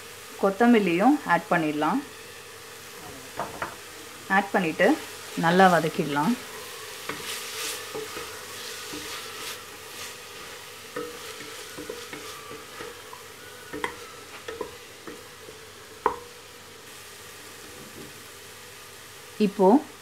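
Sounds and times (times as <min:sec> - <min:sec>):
onions frying in oil sizzle: 0:00.0 - 0:20.0
spatula scraping in pot: 0:04.9 - 0:16.3
spatula knocking against pot: 0:10.9 - 0:15.3, 0:16.0 - 0:16.3.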